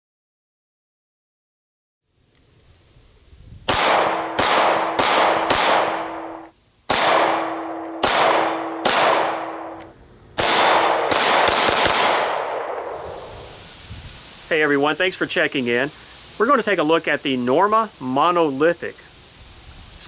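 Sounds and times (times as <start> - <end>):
pistol shots: 3.7 - 9.8, 10.4 - 13.1
steel target ringing: 3.8 - 9.8.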